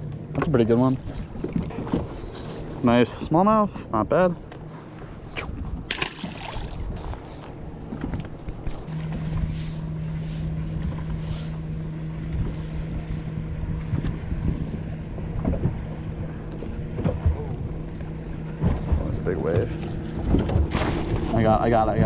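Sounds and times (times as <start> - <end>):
boat motor hum: 0.0 - 22.0
wind buffeting microphone: 5.2 - 22.0.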